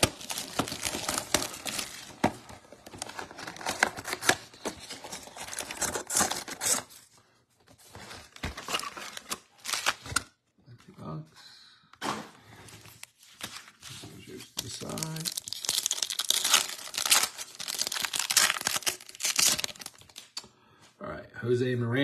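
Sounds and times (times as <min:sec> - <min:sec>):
cardboard tearing: 0:00.0 - 0:07.0, 0:14.8 - 0:20.2
packaging crinkling: 0:00.0 - 0:07.0, 0:13.0 - 0:20.4.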